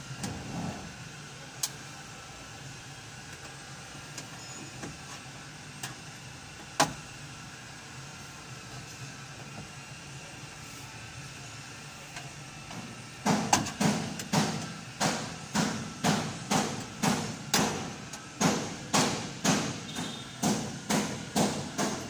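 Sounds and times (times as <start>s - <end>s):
hammering: 13.2s - 22.0s.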